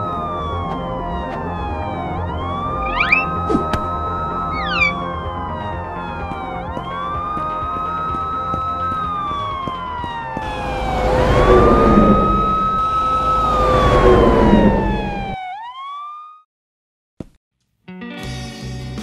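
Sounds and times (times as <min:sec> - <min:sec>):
police siren wailing: 0:00.0 - 0:16.4
rushing car noise: 0:02.5 - 0:15.4.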